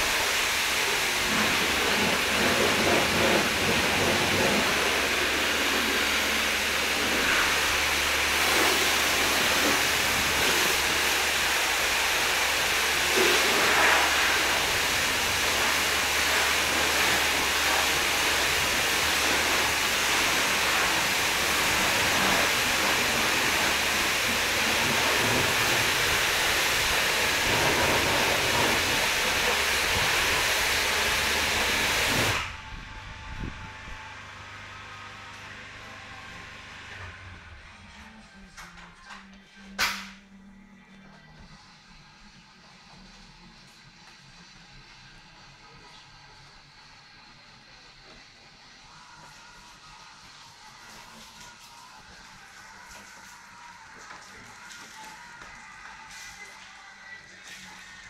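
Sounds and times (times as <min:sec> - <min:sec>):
pressure washer spraying: 0:00.0 - 0:32.5
low hum: 0:32.1 - 0:41.6.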